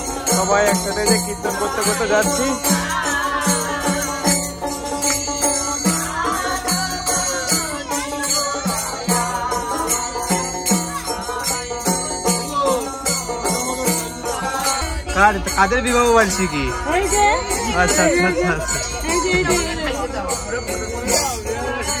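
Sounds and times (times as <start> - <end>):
hand drum: 0.0 - 15.9
small hand cymbals: 0.0 - 22.0
voices singing together: 0.0 - 22.0.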